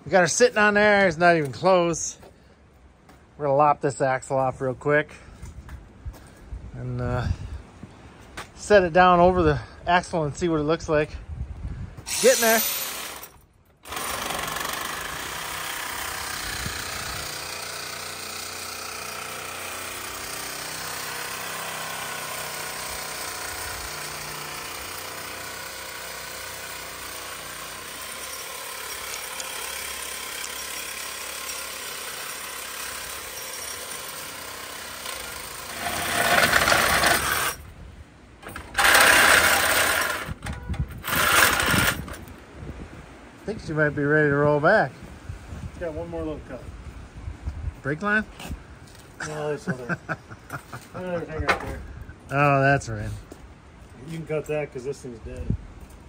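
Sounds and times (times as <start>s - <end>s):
reciprocating saw cutting steel: 12.0s - 37.6s, 38.4s - 40.4s.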